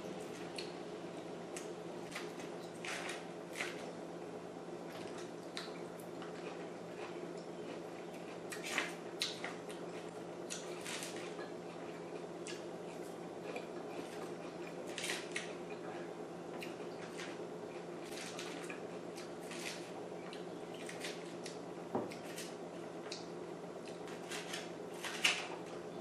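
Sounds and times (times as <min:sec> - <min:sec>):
steady low hum: 0:00.0 - 0:26.0
chewing sounds: 0:04.9 - 0:22.3.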